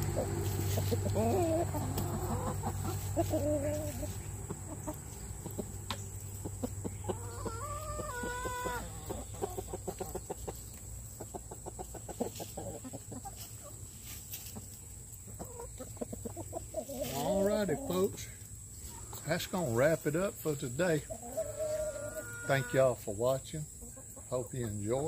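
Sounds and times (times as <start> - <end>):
chicken drawn-out call: 0.0 - 5.7, 6.5 - 10.6, 21.1 - 22.9
chickens clucking: 0.0 - 25.0.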